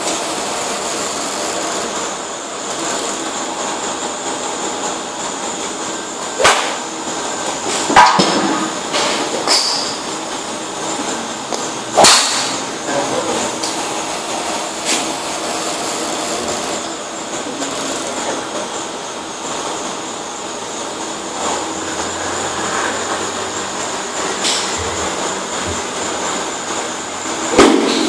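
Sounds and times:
steady background hum: 0.0 - 28.0
golf driver striking ball: 6.4 - 6.8.

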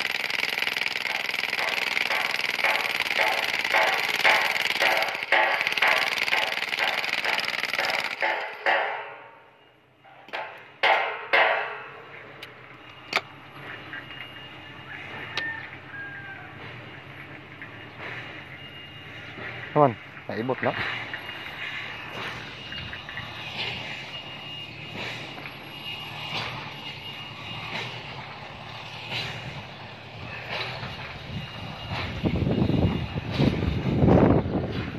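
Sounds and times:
demolition hammer bursts: 0.0 - 9.6
machine drone: 0.0 - 34.9.

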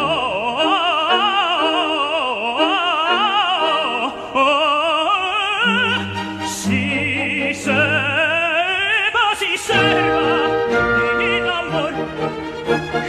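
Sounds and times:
operatic tenor singing: 0.0 - 13.0
orchestra sustained notes: 9.7 - 13.0.

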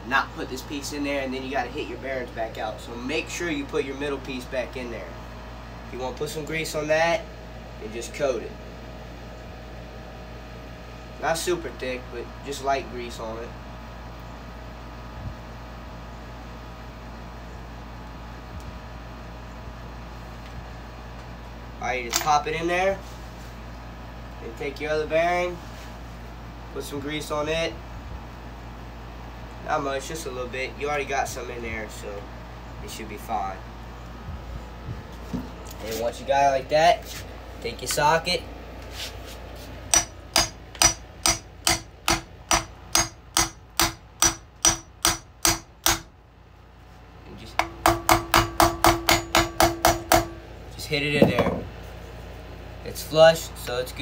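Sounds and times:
background hum and hiss: 0.0 - 54.0
hammer striking metal socket: 39.9 - 46.1.

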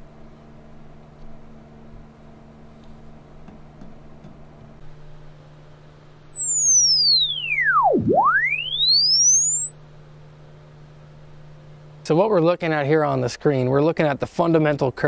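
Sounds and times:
sine sweep test tone: 5.4 - 10.7.

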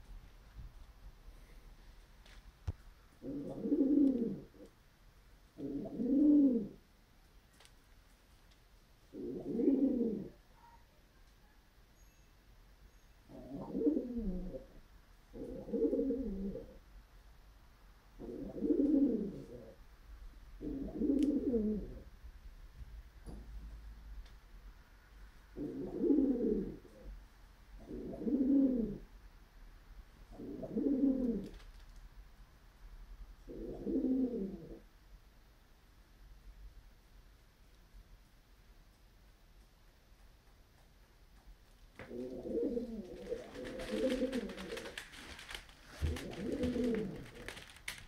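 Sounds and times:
pigeon cooing: 3.2 - 4.7, 5.6 - 6.8, 9.1 - 10.8, 13.3 - 16.8, 18.2 - 19.8, 20.6 - 22.1, 25.6 - 27.2, 27.8 - 29.1, 30.3 - 31.6, 33.4 - 34.9, 42.0 - 48.0.

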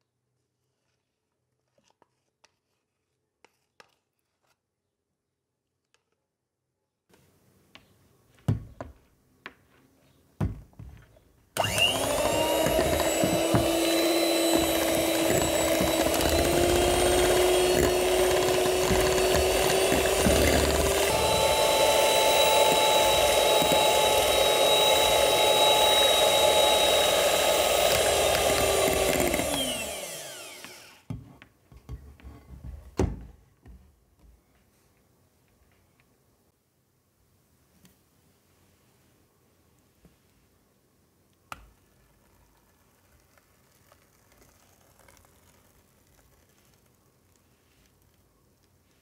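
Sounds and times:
electric hand mixer whining: 11.6 - 31.1.

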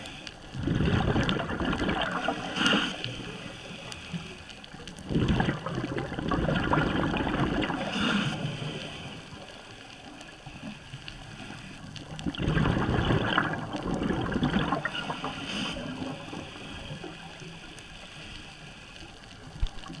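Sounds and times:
quiet steady hiss: 0.0 - 20.0
underwater regulator bubbling exhalations: 0.6 - 3.6, 5.0 - 9.1, 12.1 - 17.2.

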